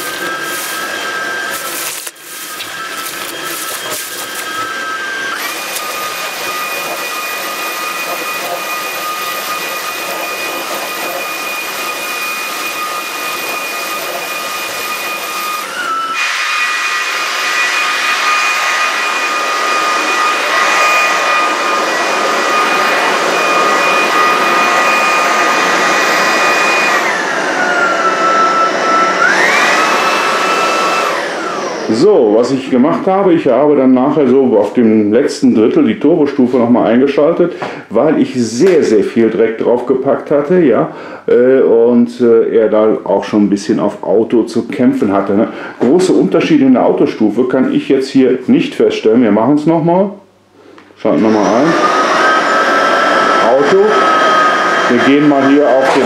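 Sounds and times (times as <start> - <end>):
vacuum motor whine: 0.0 - 33.8, 51.0 - 56.0
vacuum brush on carpet: 0.0 - 34.2, 51.1 - 56.0.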